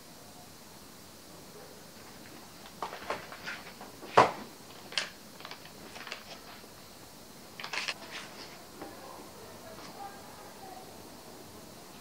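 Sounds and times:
plastic packaging crinkling: 0:04.7 - 0:06.6.

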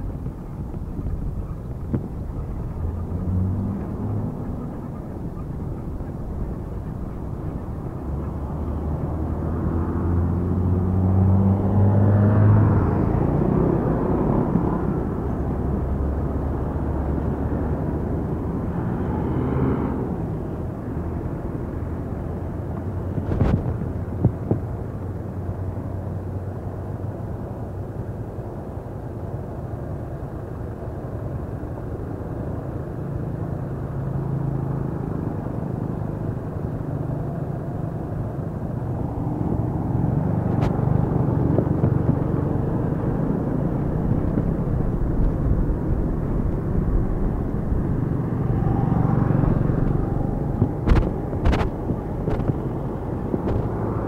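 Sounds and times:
wind on microphone: 0:00.0 - 0:24.8, 0:37.2 - 0:54.0
road traffic rumble: 0:00.0 - 0:54.0
truck passing: 0:00.0 - 0:54.0.

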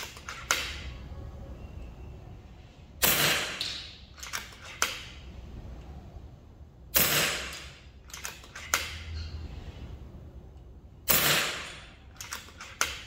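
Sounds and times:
air rifle shot: 0:03.0 - 0:03.8, 0:06.9 - 0:07.8, 0:11.1 - 0:11.9
rifle lever clicks: 0:03.6 - 0:05.0, 0:07.5 - 0:09.0.

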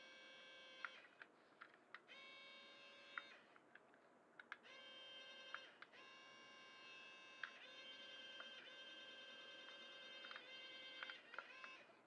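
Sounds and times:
tiny electric motors whirring: 0:02.1 - 0:03.5, 0:04.6 - 0:11.9
light plastic clicks: 0:03.1 - 0:04.7, 0:09.7 - 0:11.8.

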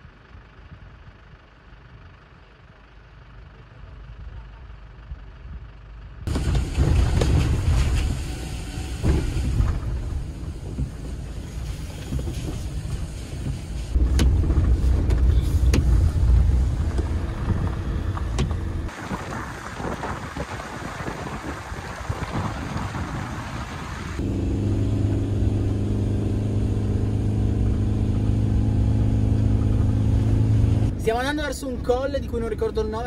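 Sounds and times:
road and engine rumble: 0:00.0 - 0:33.0
wind buffeting microphone: 0:05.1 - 0:24.4.

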